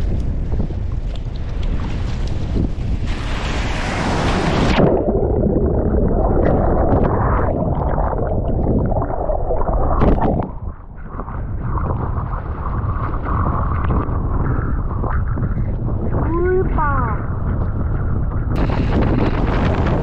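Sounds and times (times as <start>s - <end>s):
muffled underwater turbulent water: 0.0s - 20.0s
surf hissing: 3.1s - 5.0s.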